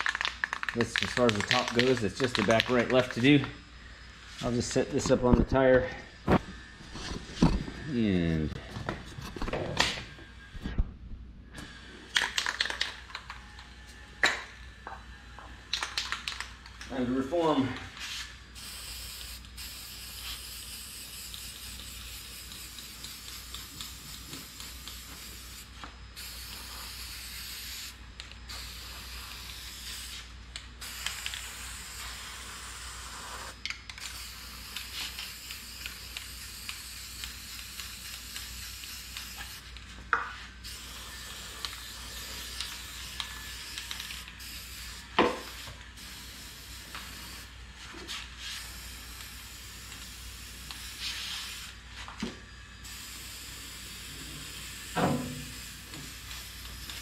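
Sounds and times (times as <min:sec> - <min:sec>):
aerosol can spraying: 0:18.0 - 0:52.2, 0:52.8 - 0:57.0.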